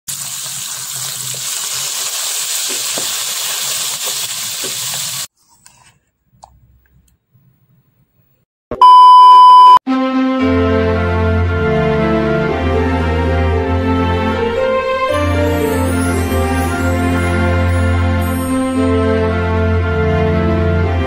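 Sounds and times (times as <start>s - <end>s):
deep-frying sizzle in hot oil: 0.1s - 5.3s
loud steady beep: 8.8s - 9.8s
music: 9.9s - 21.0s.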